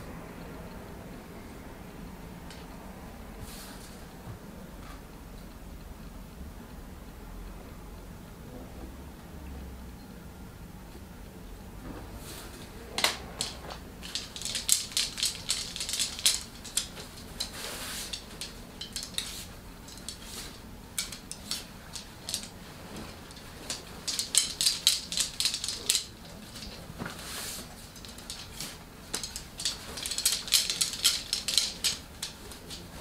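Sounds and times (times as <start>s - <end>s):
small hard objects clicking: 13.0s - 26.8s, 27.8s - 33.0s.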